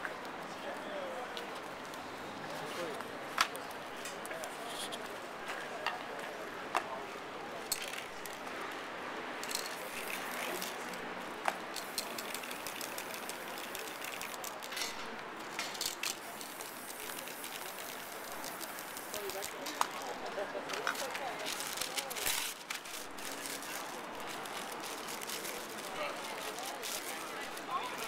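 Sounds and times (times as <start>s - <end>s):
cans and caps clicking and knocking: 7.7s - 8.4s, 9.4s - 20.0s
spray-paint can hissing: 9.5s - 10.8s, 11.8s - 14.6s, 15.8s - 19.6s.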